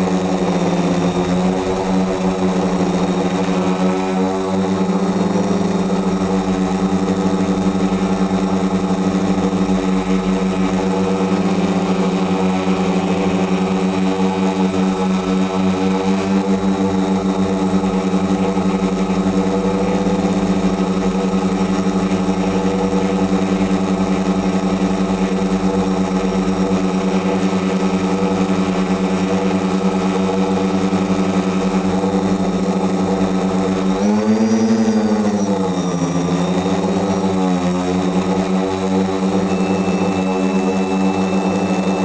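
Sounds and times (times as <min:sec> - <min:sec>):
drone propellers humming: 0:00.0 - 0:42.0
thin high whine: 0:15.9 - 0:42.0.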